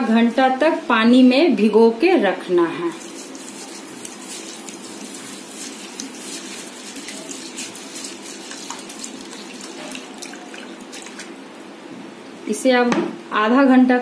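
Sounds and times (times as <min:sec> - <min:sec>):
water running into a bowl: 0:02.9 - 0:11.4.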